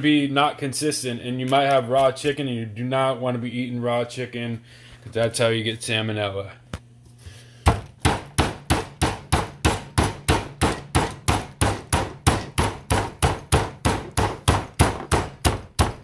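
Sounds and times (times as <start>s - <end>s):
can pounding meat on countertop: 7.7s - 16.0s.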